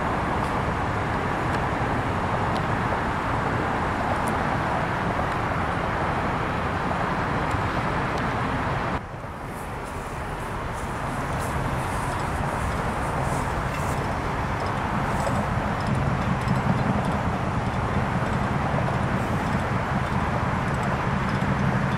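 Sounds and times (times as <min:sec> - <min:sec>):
distant traffic: 0:00.0 - 0:21.9
yard machinery: 0:00.0 - 0:21.9.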